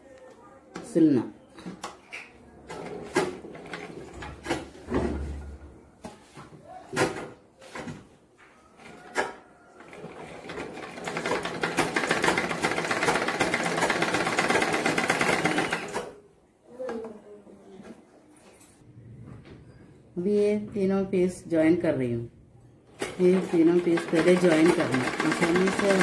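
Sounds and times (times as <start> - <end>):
sewing machine stitching: 9.8 - 16.2, 22.9 - 26.0.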